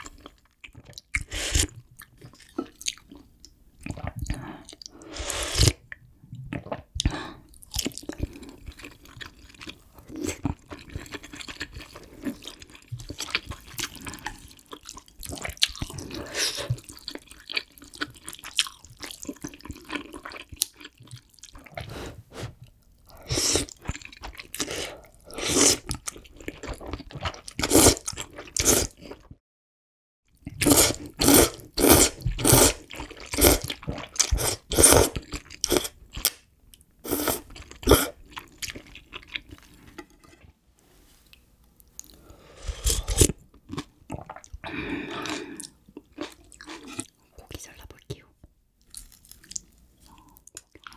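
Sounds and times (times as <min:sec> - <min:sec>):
loud noodle slurps: 0:05.0 - 0:05.8, 0:24.6 - 0:25.9, 0:30.6 - 0:36.0, 0:37.1 - 0:38.2, 0:42.6 - 0:43.4
wet chewing and smacking: 0:05.9 - 0:16.1, 0:16.7 - 0:21.9, 0:23.7 - 0:24.7, 0:37.5 - 0:40.4, 0:48.8 - 0:50.9.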